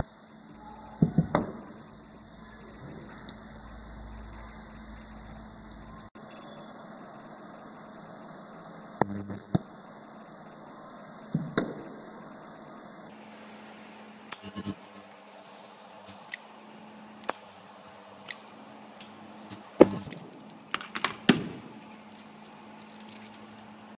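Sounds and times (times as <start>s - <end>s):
steady low hum: 0.0s - 24.0s
sharp clicks and scrapes: 14.3s - 16.4s, 17.2s - 23.7s.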